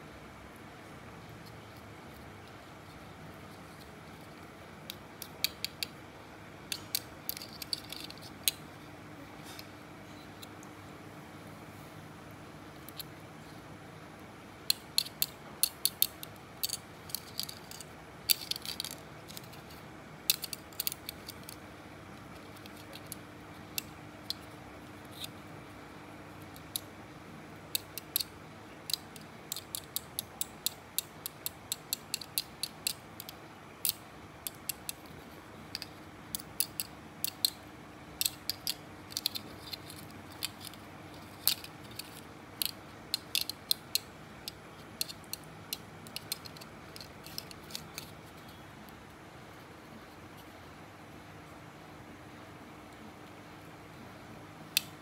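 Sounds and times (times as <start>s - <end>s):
steady low hum: 0.0s - 55.0s
shell segments clicking: 6.7s - 8.6s, 14.6s - 21.6s, 27.7s - 37.6s, 38.2s - 48.6s.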